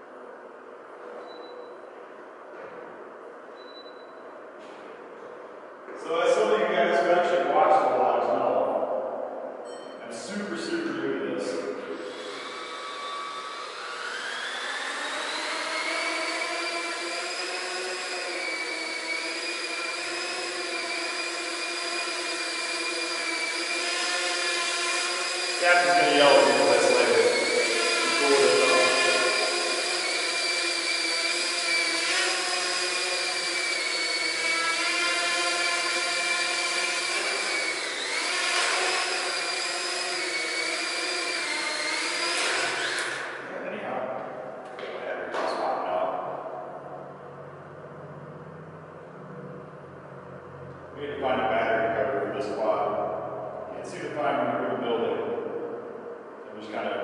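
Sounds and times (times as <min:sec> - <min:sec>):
drone propellers whining: 0:11.5 - 0:43.5, 0:45.8 - 0:51.5.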